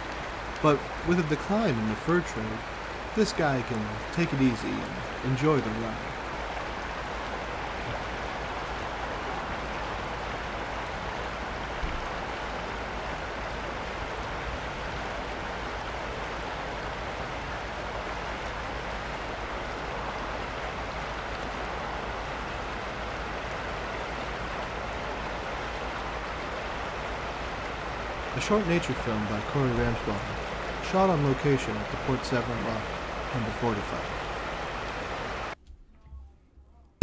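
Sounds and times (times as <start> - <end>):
fast-flowing river rushing: 0.0 - 35.6.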